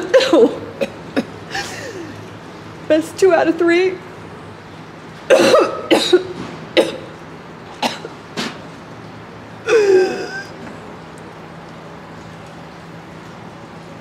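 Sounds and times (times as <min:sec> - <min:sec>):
woman coughing and gagging: 0:00.1 - 0:01.8, 0:05.3 - 0:07.1, 0:07.8 - 0:08.1
woman's strained vocal croak: 0:09.7 - 0:10.6.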